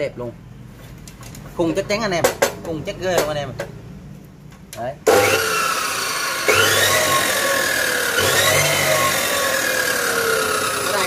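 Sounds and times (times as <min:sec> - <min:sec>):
cut-off saw motor whine: 0:05.1 - 0:11.0.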